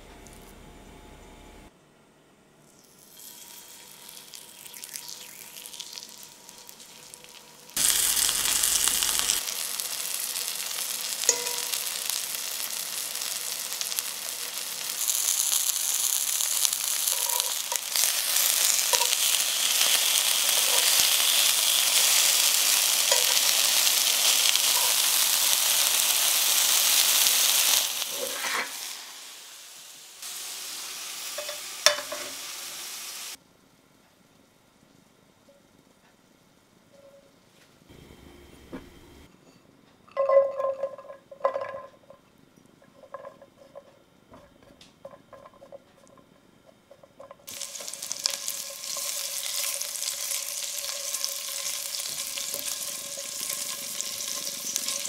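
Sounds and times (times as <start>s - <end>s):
chicken sizzling in oil: 2.9s - 33.4s, 47.4s - 55.0s.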